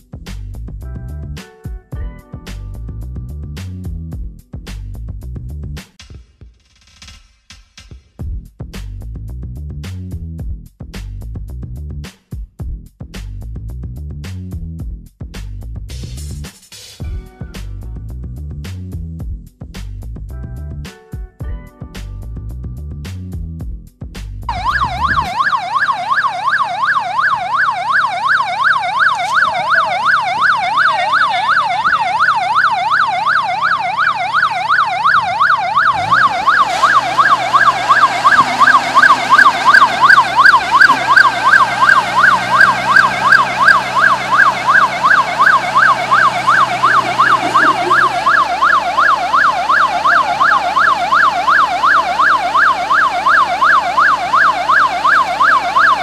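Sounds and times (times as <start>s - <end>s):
wailing warning siren: 24.5s - 56.0s.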